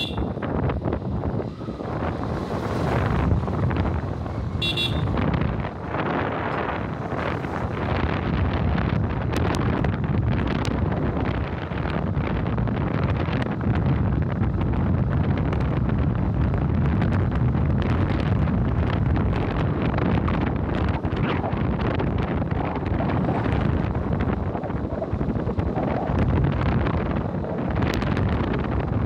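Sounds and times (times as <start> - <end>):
motorcycle engine cruising: 0.0 - 29.0
wind buffeting microphone: 0.0 - 29.0.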